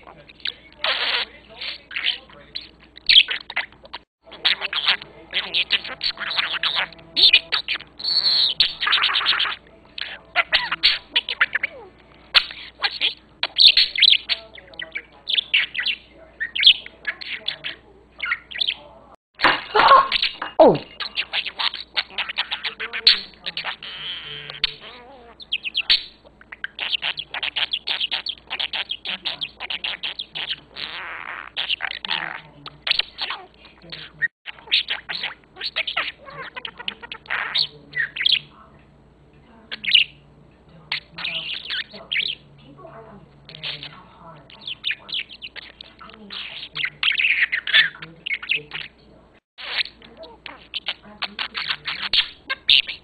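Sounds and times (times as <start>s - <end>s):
budgerigar warbling and chattering: 0.0s - 38.6s, 39.6s - 40.2s, 40.8s - 49.0s, 49.6s - 53.0s.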